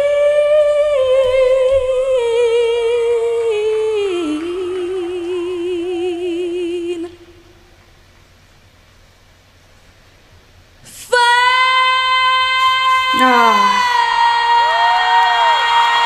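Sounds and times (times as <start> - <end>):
woman singing with vibrato: 0.0 - 7.4, 10.9 - 16.0.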